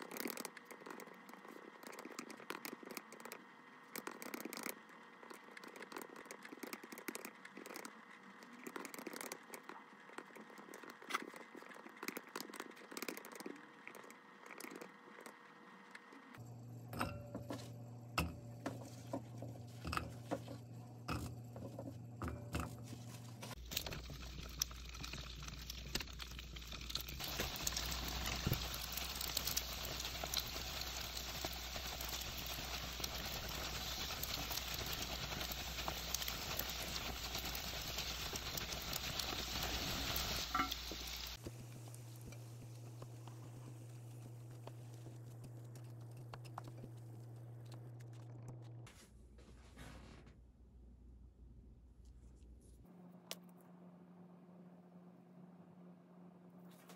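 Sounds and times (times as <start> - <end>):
typing on a keyboard: 1.8 - 14.9
oil sizzling and crackling: 17.7 - 48.1
food dropping into frying pan: 40.1 - 41.0.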